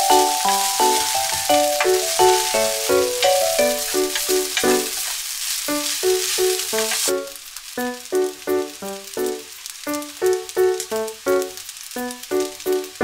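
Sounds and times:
light background melody: 0.0 - 5.0
food sizzling in pot: 0.0 - 13.0.

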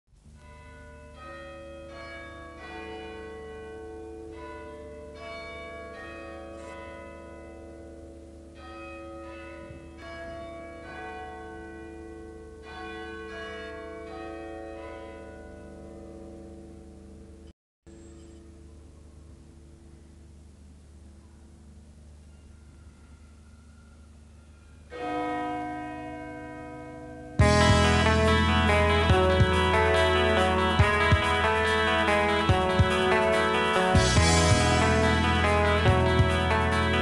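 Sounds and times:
bell-like tones ringing: 17.9 - 20.4, 21.7 - 28.5
low drone: 27.4 - 37.0.

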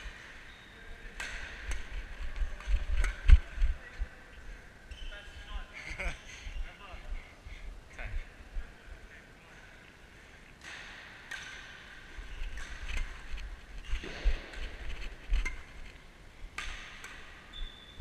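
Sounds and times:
shoe squeaks: 0.4 - 0.9, 4.9 - 5.6, 17.5 - 18.0
low rumble of camera movement: 1.6 - 4.7, 12.2 - 16.5
racket striking shuttlecock: 16.5 - 17.4.

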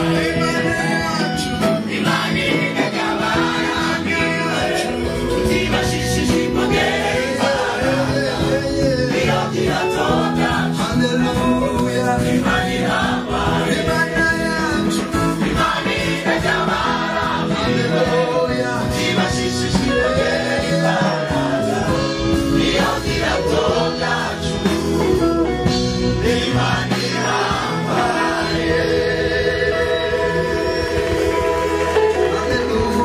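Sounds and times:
gospel choir singing: 0.0 - 33.0
instrumental backing with beat: 0.0 - 33.0.

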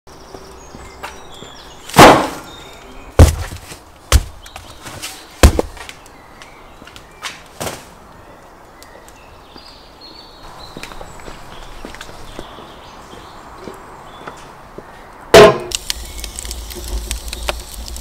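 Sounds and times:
cardboard packs thudding: 3.2 - 5.8.

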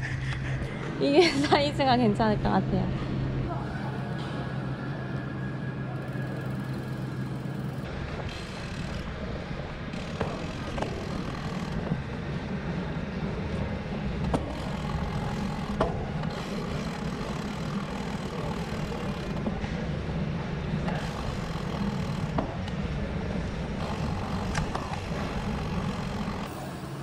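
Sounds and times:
bike tyres and drivetrain rumble: 6.3 - 27.0.

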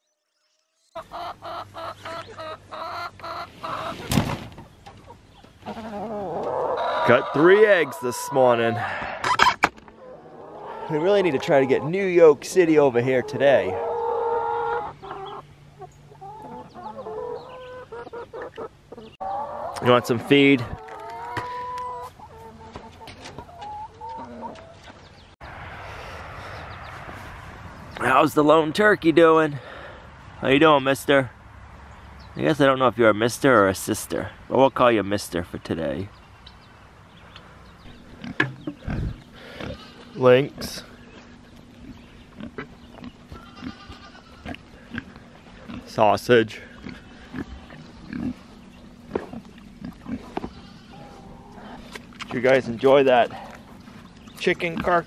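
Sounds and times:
hens clucking: 1.0 - 25.2, 37.3 - 55.0.

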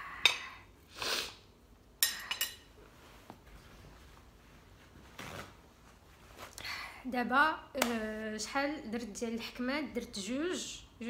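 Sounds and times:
soft rustling: 2.8 - 6.6.

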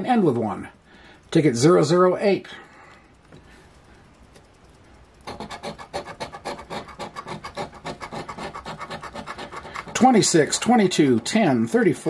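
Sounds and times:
scratch-off ticket being scraped: 5.3 - 11.3.

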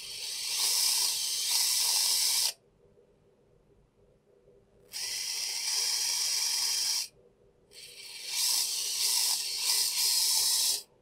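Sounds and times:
high-pitched motor whir: 0.0 - 2.5, 7.8 - 10.8.

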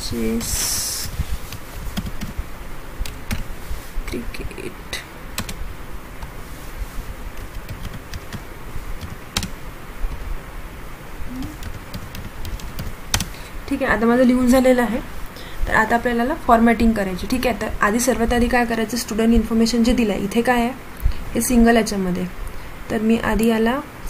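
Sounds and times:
computer keyboard typing: 1.9 - 2.4, 5.4 - 5.6, 7.5 - 8.4, 9.0 - 9.6, 11.4 - 13.4.

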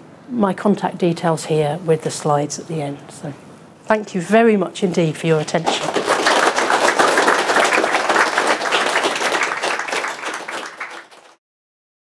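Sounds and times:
audience applauding: 5.7 - 11.4.

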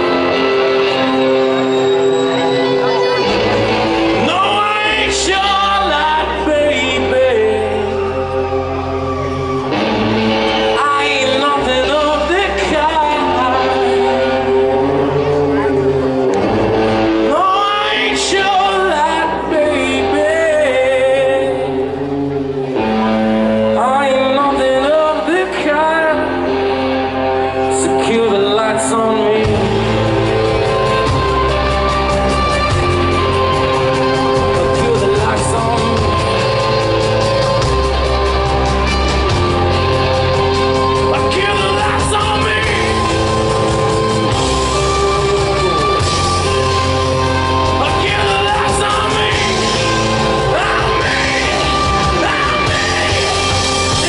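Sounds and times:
live rock band playing: 0.0 - 54.0
man singing sliding notes: 4.0 - 8.6, 10.6 - 16.3, 17.2 - 22.1, 23.6 - 26.5, 27.6 - 30.3, 32.7 - 37.3, 39.5 - 54.0.

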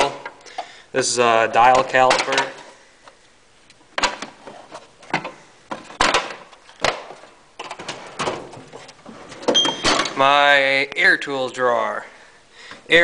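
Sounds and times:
metal drawers clacking: 5.1 - 10.2.

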